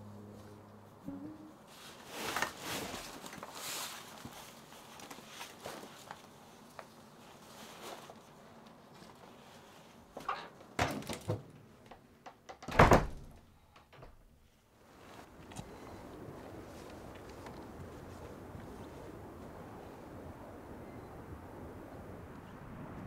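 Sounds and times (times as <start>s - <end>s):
faint rustling and handling: 1.6s - 10.8s, 13.6s - 20.0s.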